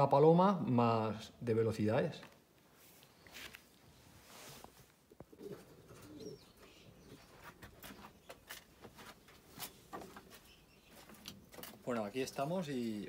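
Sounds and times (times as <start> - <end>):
pigeons cooing: 5.1 - 8.6.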